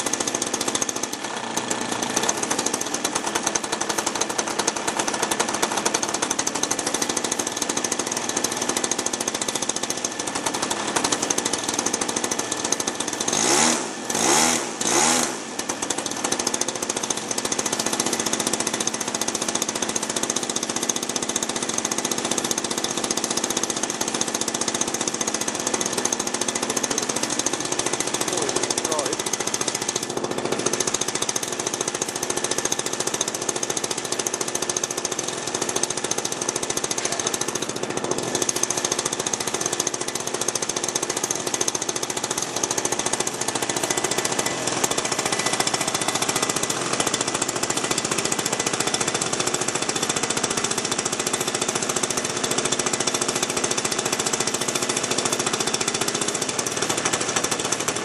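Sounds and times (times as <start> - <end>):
model aircraft engine pulsing: 0.0 - 58.0.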